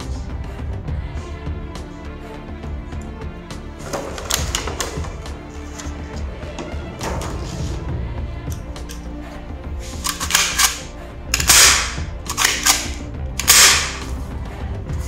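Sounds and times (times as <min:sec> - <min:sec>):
background music: 0:00.0 - 0:15.0
pump slide racking: 0:03.8 - 0:07.8
toy pistol clicks: 0:10.1 - 0:14.1.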